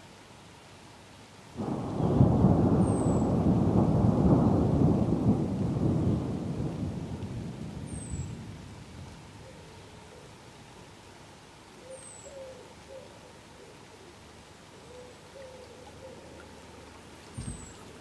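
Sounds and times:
thunder rumbling: 1.6 - 9.3.

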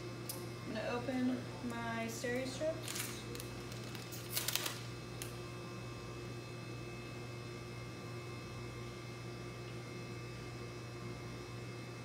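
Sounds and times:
low electrical hum: 0.0 - 12.0
paper envelope rustling open: 2.8 - 4.8.

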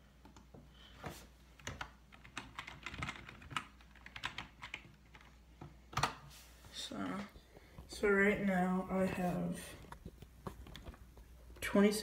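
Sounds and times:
typing on a computer keyboard: 1.6 - 6.2.

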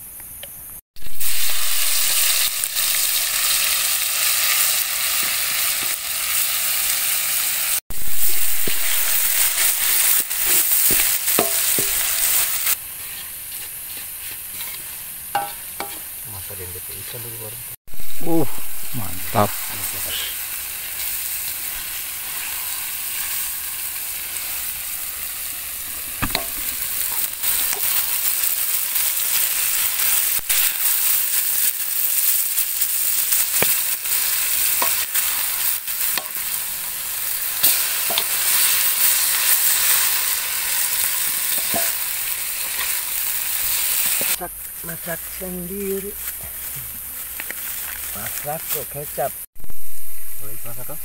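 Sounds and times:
fish sizzling in a wok: 0.4 - 51.0
metal ladle scraping a wok: 8.1 - 16.1, 37.5 - 44.4.

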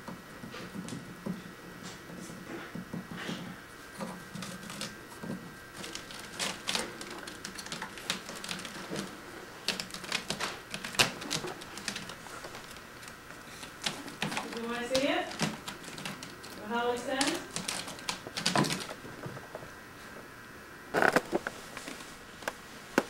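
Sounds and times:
kitten claws scratching rope post: 4.0 - 19.0.

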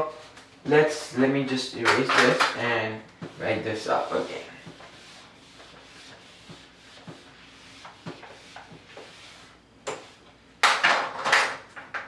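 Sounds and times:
eraser scrubbing whiteboard: 3.2 - 10.3.

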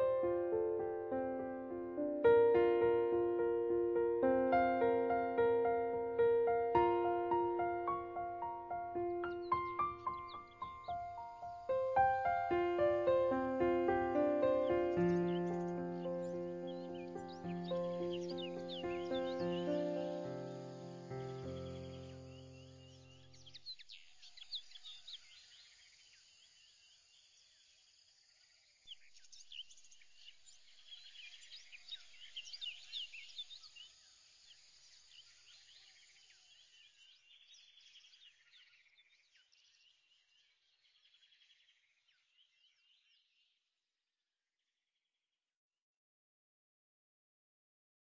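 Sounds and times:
faint high chirping: 0.0 - 27.1.

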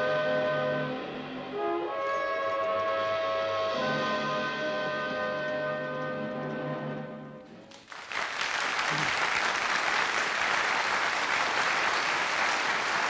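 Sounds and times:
studio audience applause: 7.7 - 13.0.

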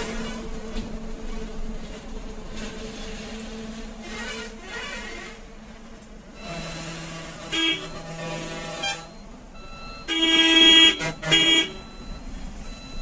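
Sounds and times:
vehicle horns honking: 6.4 - 12.0.

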